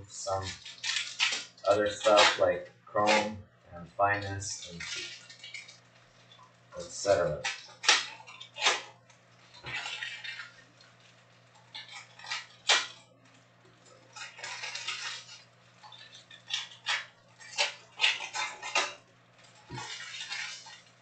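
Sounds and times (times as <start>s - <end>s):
foil wrapper crinkling and tearing: 0.2s - 3.3s, 4.1s - 21.0s
cards snapping and tapping: 11.8s - 13.0s.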